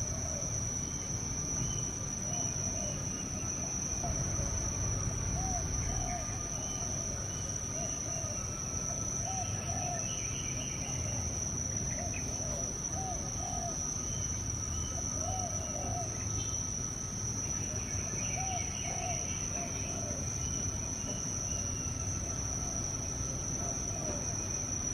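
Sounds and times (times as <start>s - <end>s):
insect drone: 0.0s - 24.9s
bird hooting: 2.3s - 3.2s, 5.3s - 11.2s, 11.8s - 13.9s, 15.0s - 16.5s, 18.2s - 20.3s.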